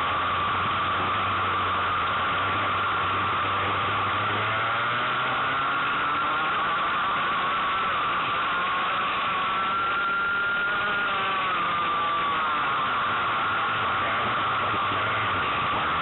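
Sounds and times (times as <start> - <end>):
racing kart engine revving: 0.0 - 16.0.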